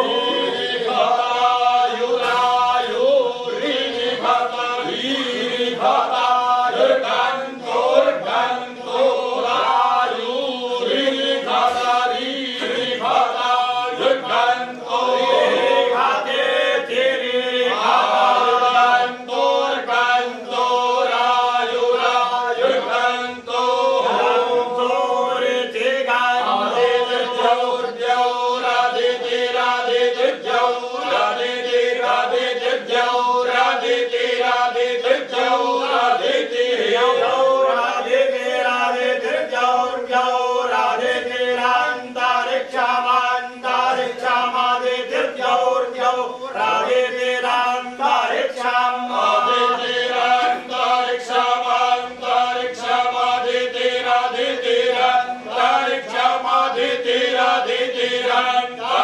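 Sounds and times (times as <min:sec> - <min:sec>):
men chanting in unison: 0:00.0 - 0:59.0.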